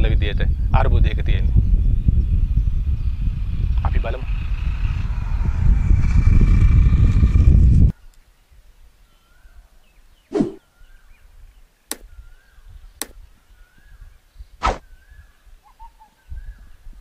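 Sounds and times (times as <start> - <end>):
bird chirping: 7.9 - 17.0
whoosh: 10.3 - 10.6.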